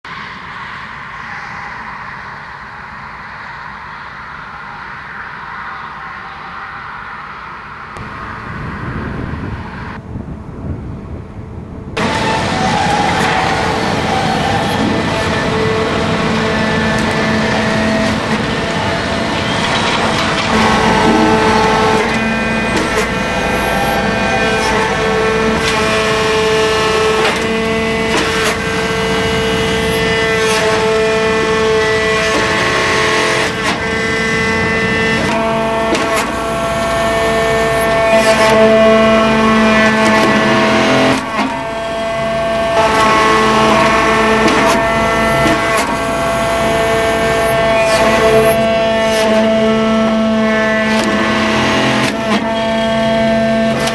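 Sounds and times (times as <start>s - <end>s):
mechanical whine of press: 12.0s - 53.9s.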